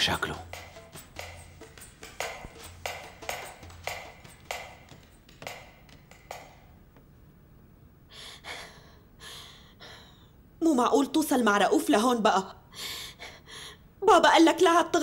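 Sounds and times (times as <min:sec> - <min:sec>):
footsteps on tiled floor: 0:00.1 - 0:07.1.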